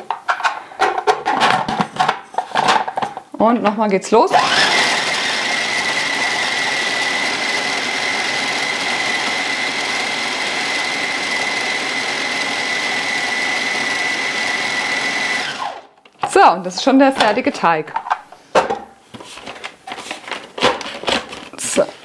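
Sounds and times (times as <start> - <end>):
food processor motor whining: 4.3 - 15.9.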